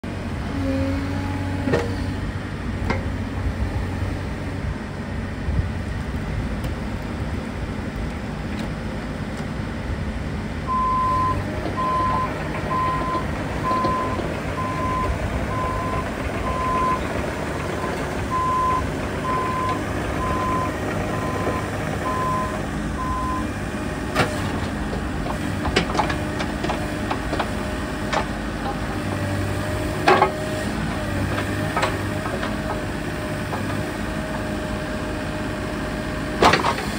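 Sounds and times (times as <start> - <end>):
excavator diesel engine running: 0.0 - 36.9
alarm beeping: 10.7 - 17.0, 18.3 - 23.5.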